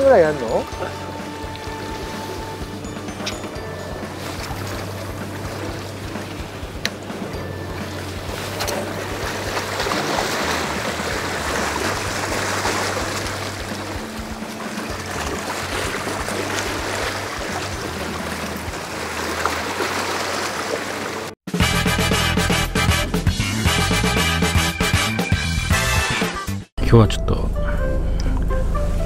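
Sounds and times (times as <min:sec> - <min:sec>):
sea water lapping against rocks: 0:00.0 - 0:21.4.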